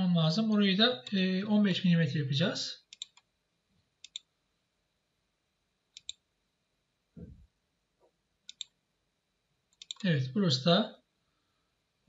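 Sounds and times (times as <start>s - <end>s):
computer mouse buttons clicking: 2.9s - 3.3s, 4.0s - 4.3s, 6.0s - 6.2s, 8.5s - 8.8s, 9.7s - 10.0s.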